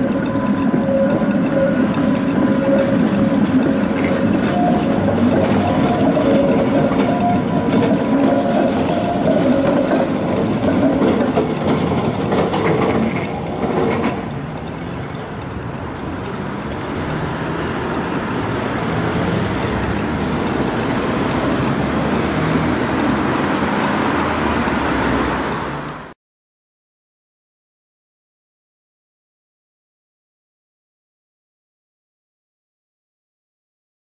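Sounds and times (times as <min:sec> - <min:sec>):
trams rumbling over tracks: 0:00.0 - 0:26.2
cars driving by: 0:12.8 - 0:26.2.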